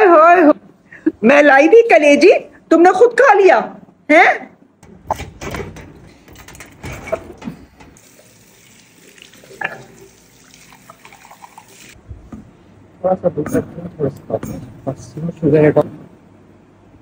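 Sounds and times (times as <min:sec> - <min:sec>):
knocks and clatter: 0:04.8 - 0:08.0
tap running into washbasin: 0:06.3 - 0:12.0.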